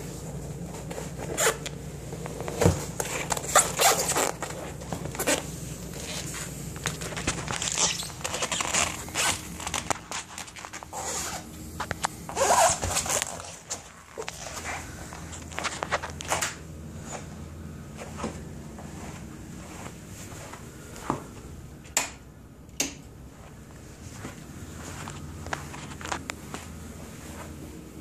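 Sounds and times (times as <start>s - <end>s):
low steady hum: 0.0s - 28.0s
scraping and rustling: 0.1s - 17.3s, 24.0s - 27.6s.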